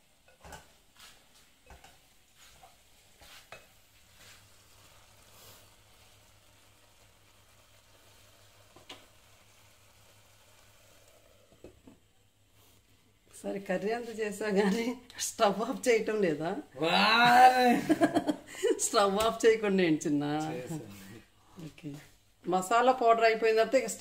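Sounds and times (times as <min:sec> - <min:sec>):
low steady sizzle: 0:00.0 - 0:24.0
wooden spatula scraping pan: 0:00.4 - 0:04.5.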